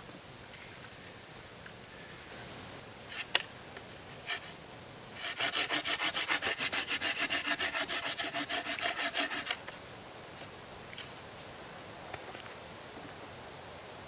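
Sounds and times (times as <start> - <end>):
hand saw cutting branch: 5.2 - 9.7.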